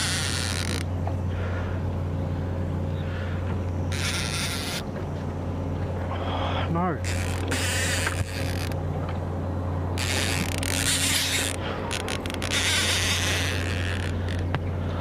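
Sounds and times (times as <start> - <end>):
fishing reel drag ratchet rattling: 0.0 - 0.9, 7.0 - 8.8, 10.0 - 14.5
reel clicks: 0.0 - 1.0, 7.0 - 8.8, 10.0 - 14.6
low hum: 0.0 - 15.0.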